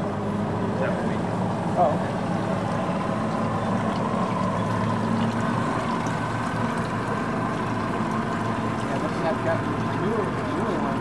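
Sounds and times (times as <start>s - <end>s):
outboard motor idling: 0.0s - 11.0s.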